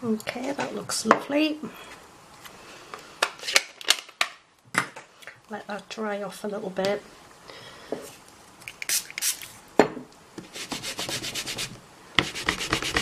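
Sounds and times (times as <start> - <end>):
quick rubbing strokes: 8.8 - 9.6, 10.4 - 13.0.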